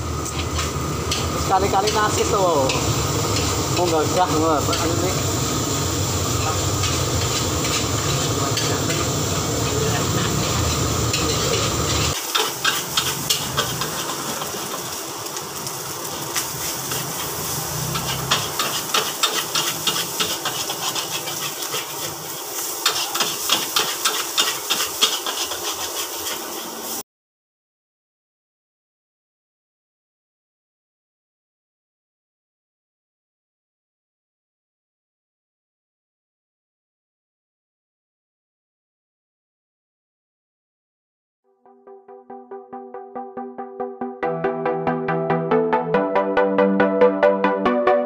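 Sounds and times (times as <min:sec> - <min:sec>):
food sizzling in a wok: 0:00.0 - 0:27.0
metal spatula scraping wok: 0:00.2 - 0:15.0, 0:16.1 - 0:27.0.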